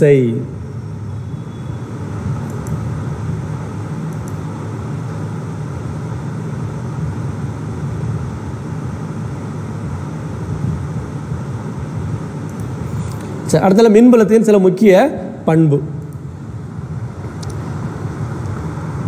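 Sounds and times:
low rumbling room noise: 0.0 - 19.0.

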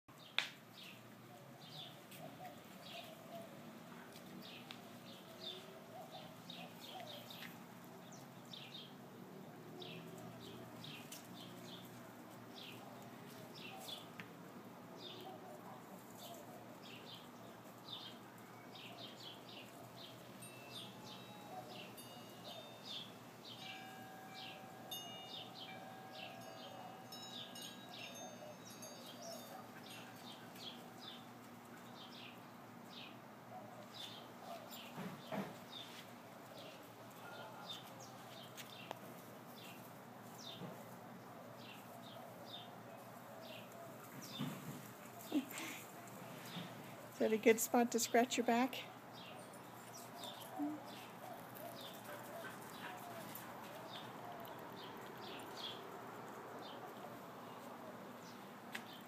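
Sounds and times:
small birds chirping: 0.1 - 59.0
wind chimes ringing: 20.3 - 30.9.

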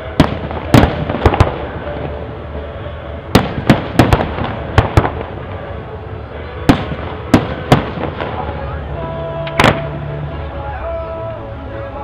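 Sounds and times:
fireworks bursting bangs: 0.0 - 6.0, 6.6 - 8.8, 9.5 - 10.0.

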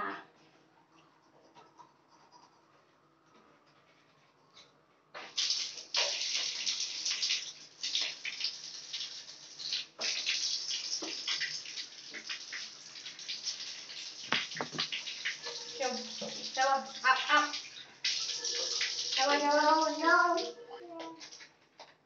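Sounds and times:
water splashing in basin: 5.2 - 20.1.

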